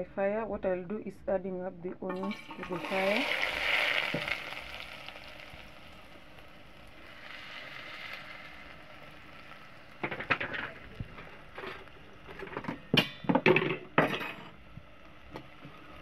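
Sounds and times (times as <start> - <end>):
onions sizzling in hot oil: 2.1 - 13.3, 14.6 - 16.0.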